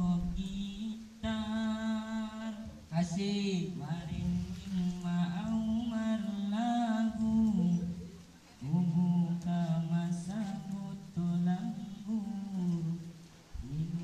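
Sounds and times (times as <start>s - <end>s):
person singing slow melody: 0.0s - 14.0s.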